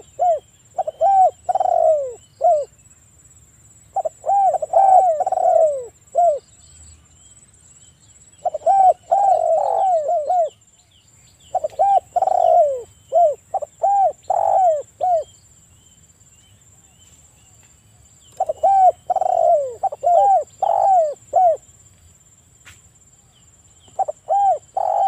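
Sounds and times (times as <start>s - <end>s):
dove cooing: 0.0s - 2.7s, 3.9s - 6.4s, 8.4s - 10.6s, 11.5s - 15.3s, 18.3s - 21.6s, 23.9s - 25.0s.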